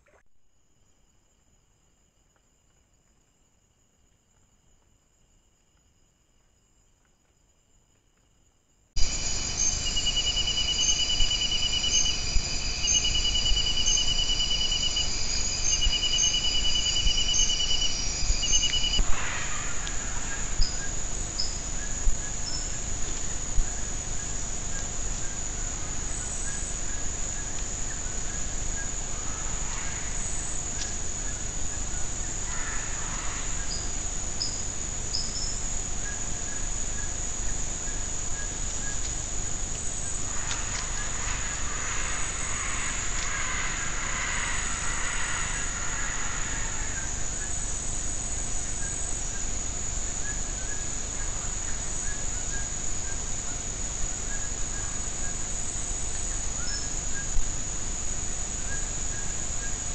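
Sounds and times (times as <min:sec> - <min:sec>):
crickets chirping: 0:00.0 - 0:59.9.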